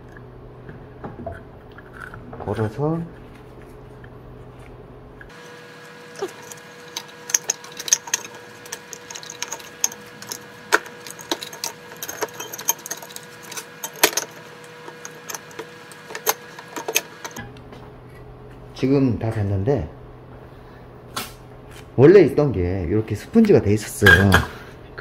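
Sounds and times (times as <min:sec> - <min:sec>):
metallic clicks and clatter: 0:05.3 - 0:17.4.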